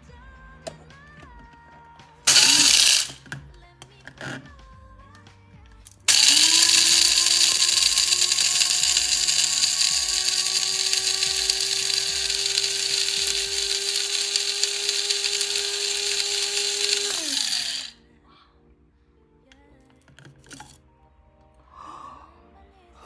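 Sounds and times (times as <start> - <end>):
coffee grinder grinding beans: 2.3 - 4.5, 5.9 - 18.0, 20.2 - 20.8.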